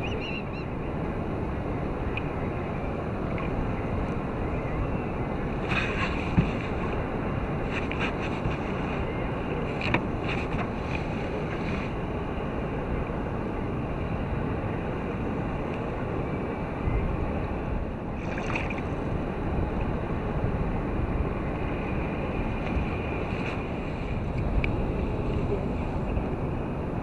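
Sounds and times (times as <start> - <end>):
wind rumbling on microphone: 0.0 - 27.0
water lapping against kayak hull: 5.5 - 12.0, 18.1 - 19.2.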